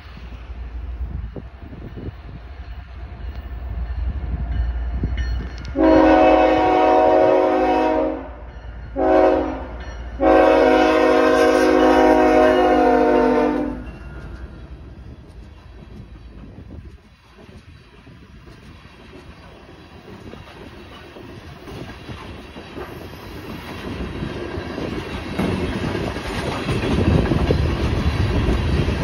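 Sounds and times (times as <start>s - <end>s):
train rumbling on rails: 0.0s - 29.0s
train air horn blasts: 5.7s - 14.0s.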